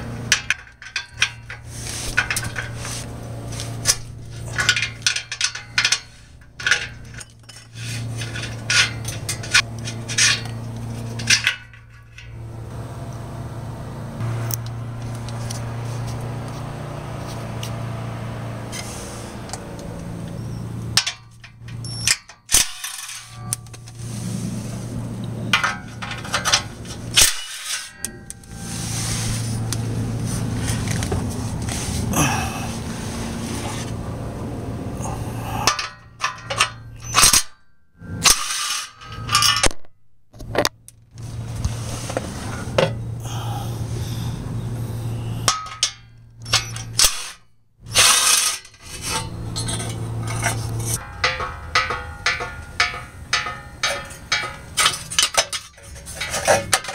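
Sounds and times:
metallic clicks and clanks: 0.0s - 12.5s, 18.7s - 24.0s, 25.2s - 28.6s, 35.6s - 41.2s, 45.4s - 56.9s
steady low hum: 0.0s - 22.2s, 22.9s - 37.2s, 41.2s - 47.0s, 47.8s - 56.9s.

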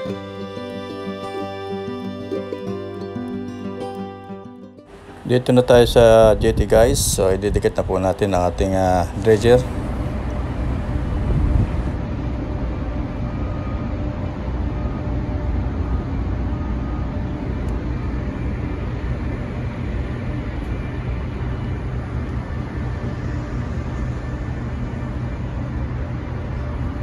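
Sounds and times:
faint steady tones: 0.0s - 27.0s
low rumble of ship engines: 4.9s - 27.0s.

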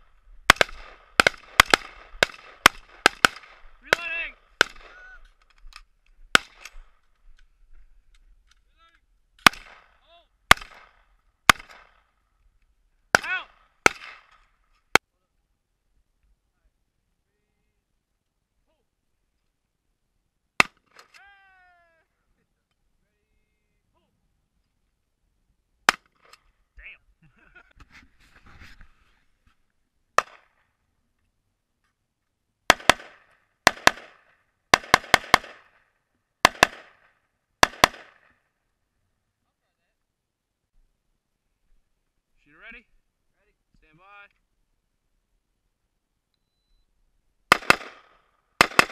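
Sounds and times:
rifle gunshots: 0.5s - 5.0s, 6.3s - 6.9s, 9.4s - 12.0s, 13.1s - 14.4s, 30.2s - 30.5s, 32.7s - 35.8s, 36.4s - 38.3s, 47.5s - 48.9s
short ringing tone: 46.4s - 46.9s.

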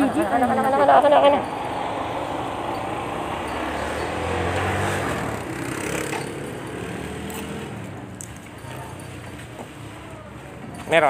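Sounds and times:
small motorcycle engine humming: 0.0s - 8.2s.

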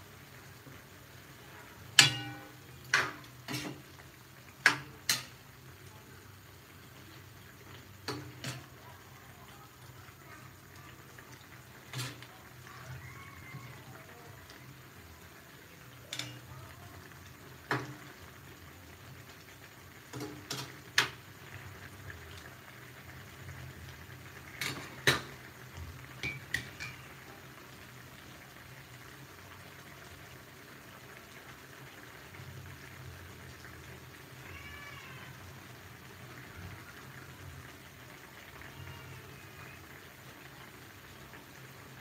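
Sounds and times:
metal ladle knocking against wok: 2.0s - 3.8s.

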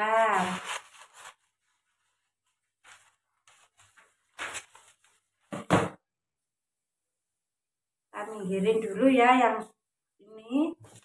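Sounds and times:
paper sheets rustling: 0.0s - 5.5s.

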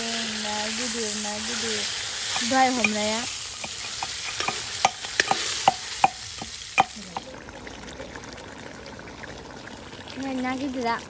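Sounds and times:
fish sizzling in hot oil: 0.0s - 11.0s
metal ladle clinking on pan: 2.3s - 7.0s.

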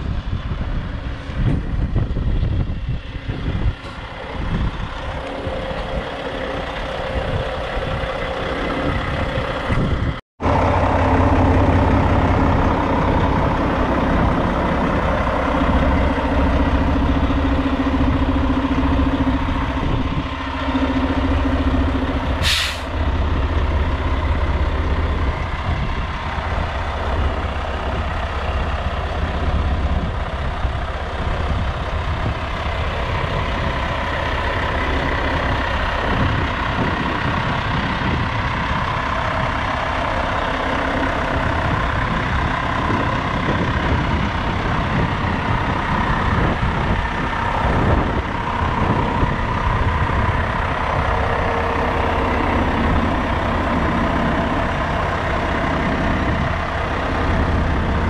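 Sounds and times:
truck diesel engine idling: 0.0s - 58.0s
compressed air hiss: 22.4s - 22.9s.

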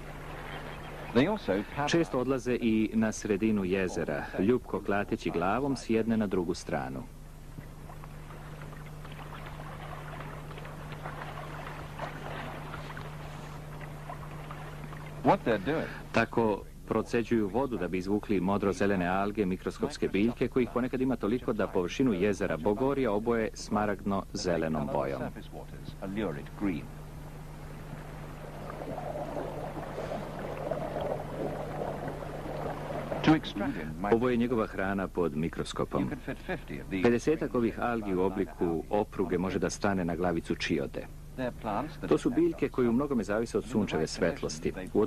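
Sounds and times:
hot spring water bubbling: 0.0s - 6.5s, 7.1s - 16.6s, 26.1s - 40.1s, 41.2s - 45.0s
low hum: 0.0s - 45.0s
water lapping and splashing: 7.4s - 16.2s, 27.0s - 34.2s.

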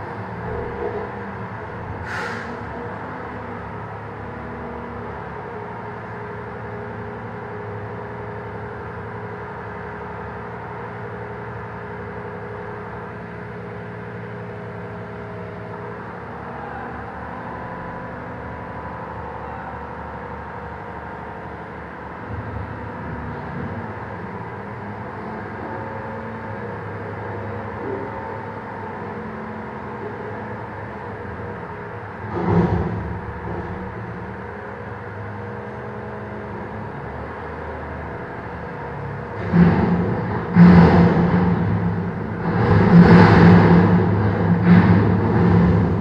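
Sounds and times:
garbage truck diesel engine: 0.0s - 46.0s.

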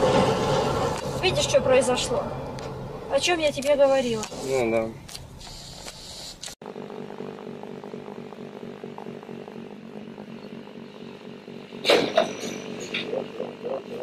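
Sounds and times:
loud crash-like burst: 0.0s - 3.3s, 11.8s - 12.9s
vehicle engine running: 0.0s - 14.0s.

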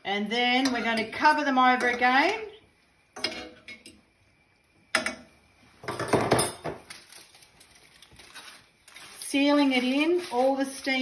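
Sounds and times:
metal utensil clinking on pan: 0.6s - 2.1s
aluminium foil crinkling: 6.8s - 11.0s.

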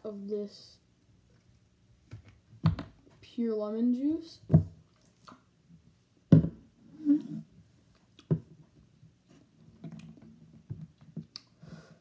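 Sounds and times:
mouth noises: 6.8s - 7.5s
boy's strained vocal sound: 6.9s - 7.5s.

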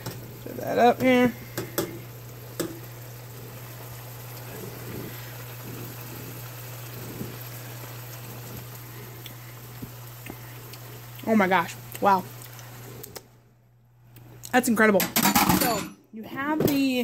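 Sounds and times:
sauce bubbling in a pan: 0.0s - 13.4s
constant low hum: 0.0s - 17.0s.

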